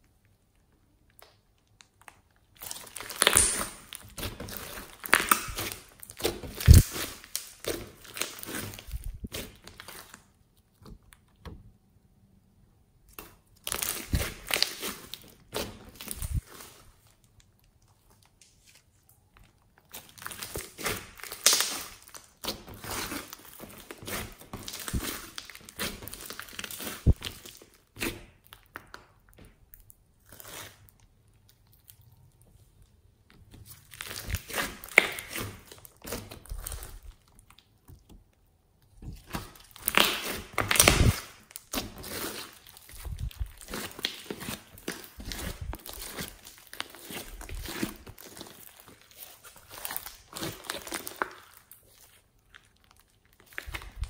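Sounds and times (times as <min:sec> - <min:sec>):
slime clicking and popping: 0:01.1 - 0:10.0, 0:20.0 - 0:29.2, 0:38.9 - 0:47.0.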